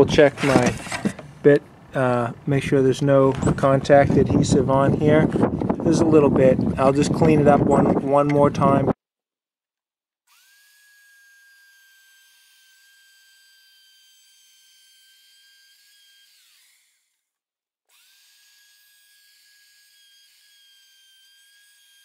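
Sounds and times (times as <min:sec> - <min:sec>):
router motor whining: 0:10.3 - 0:17.3, 0:17.9 - 0:22.0.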